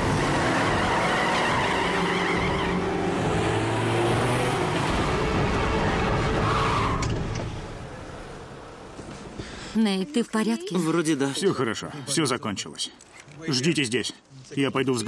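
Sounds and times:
car engine and tyre noise: 0.0s - 9.8s.

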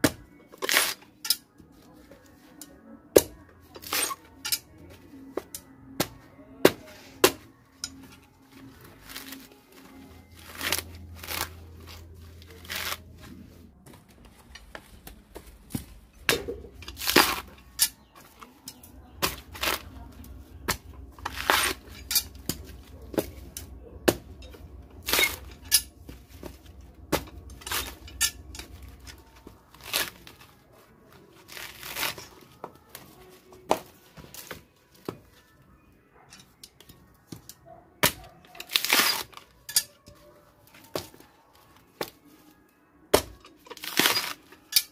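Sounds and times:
coconut husk tearing: 0.6s - 1.0s, 8.7s - 13.5s, 16.3s - 18.0s, 18.8s - 32.5s, 38.0s - 39.5s, 43.1s - 44.9s.

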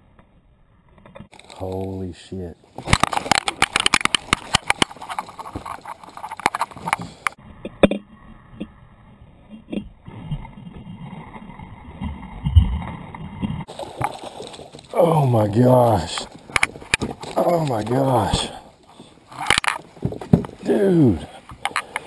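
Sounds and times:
fishing gear clicking and knocking: 1.3s - 8.0s, 13.7s - 22.0s.

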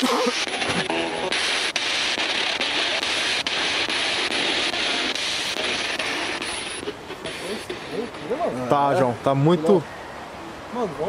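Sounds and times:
radio static hiss: 0.0s - 11.0s
faint radio clicks: 0.4s - 8.7s.

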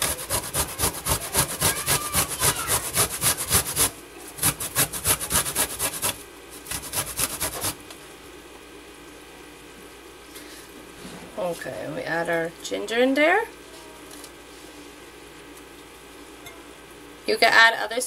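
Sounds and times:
ginger grated on metal grater: 0.0s - 7.8s.

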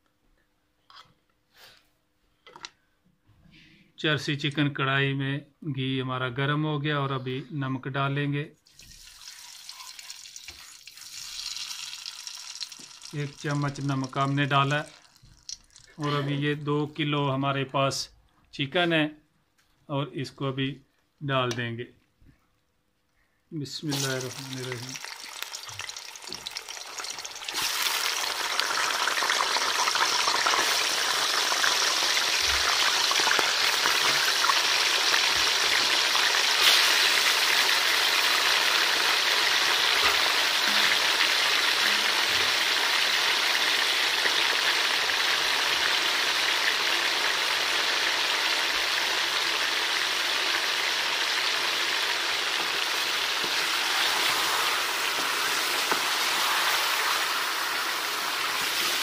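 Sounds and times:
chicken sizzling in hot fat: 8.7s - 16.2s, 23.8s - 59.0s
wooden spoon turning food: 52.6s - 59.0s.

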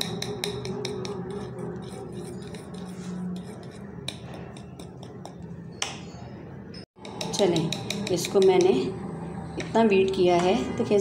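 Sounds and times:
spoon clicking and scraping bowl: 0.0s - 5.6s, 7.0s - 8.9s
spoon beating batter in bowl: 0.0s - 5.8s, 7.0s - 8.9s.

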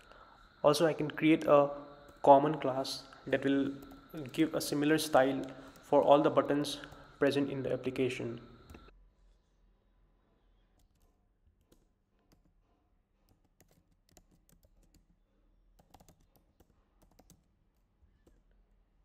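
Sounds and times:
faint keyboard typing: 1.8s - 7.4s, 10.7s - 12.6s, 13.2s - 18.7s.

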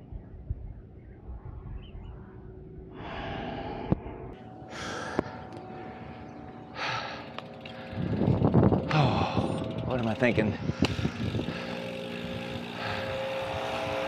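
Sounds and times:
cyclist breathing hard: 2.8s - 9.8s, 10.6s - 14.0s.

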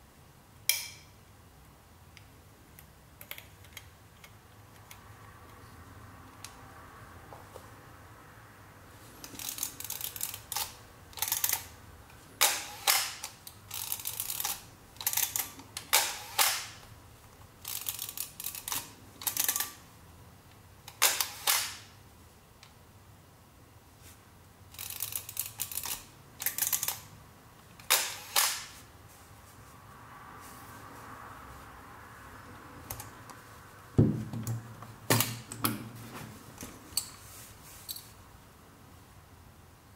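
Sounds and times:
film advance lever ratcheting: 9.3s - 11.7s, 12.4s - 16.7s, 17.6s - 19.8s, 24.7s - 27.0s.

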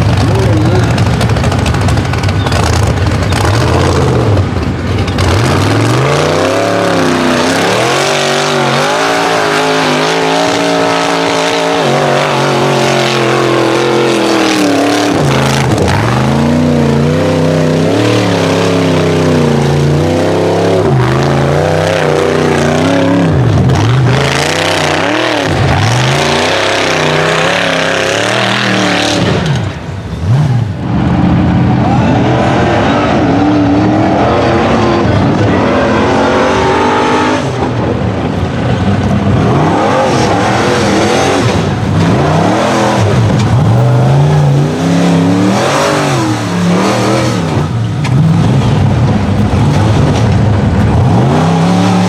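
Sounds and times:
off-road vehicle engine revving: 0.0s - 52.0s.

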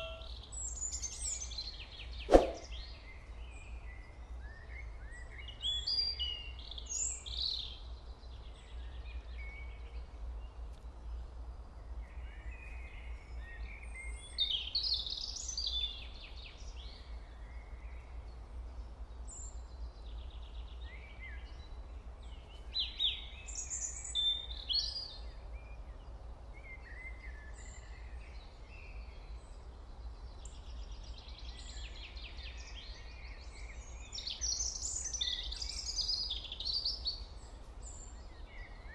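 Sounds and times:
birds chirping and trilling: 0.0s - 3.3s.

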